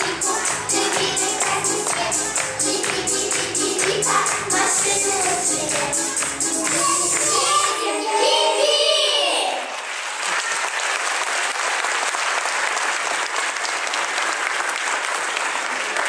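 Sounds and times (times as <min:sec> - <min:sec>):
song with backing music: 0:00.0 - 0:08.2
audience applause: 0:09.5 - 0:16.0.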